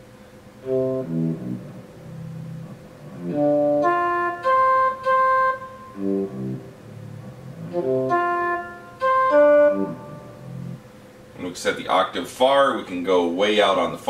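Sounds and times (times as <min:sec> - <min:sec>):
synthesized instrument notes: 0:00.6 - 0:10.9.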